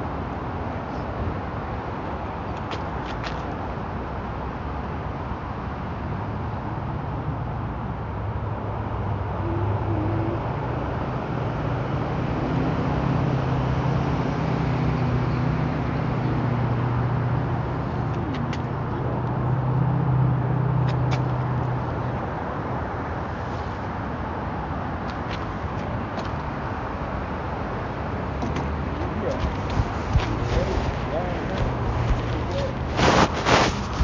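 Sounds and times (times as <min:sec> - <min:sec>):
vehicle engine hum: 0:00.1 - 0:34.0
traffic hiss: 0:23.2 - 0:24.2, 0:29.0 - 0:34.0.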